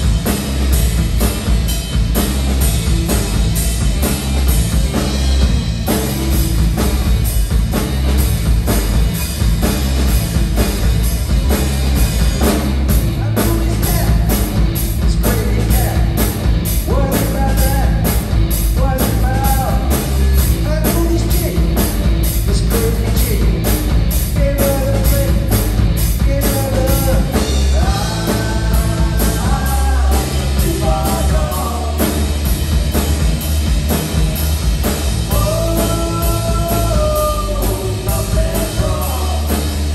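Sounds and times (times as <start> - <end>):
drum kit cymbal beat: 0.0 - 39.9
electric guitars: 0.0 - 39.9
live rock band playing: 0.0 - 39.9
man singing lead: 13.0 - 32.4, 35.2 - 39.9.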